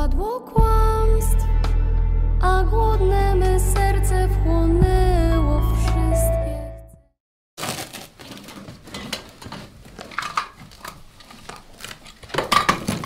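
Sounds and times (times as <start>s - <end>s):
film score music: 0.7s - 7.1s
clothing rustling and crinkling: 7.6s - 13.0s.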